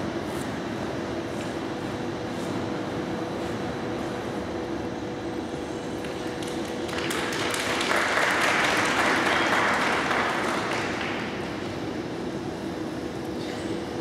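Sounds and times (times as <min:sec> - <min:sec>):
audience applauding: 0:06.3 - 0:11.4.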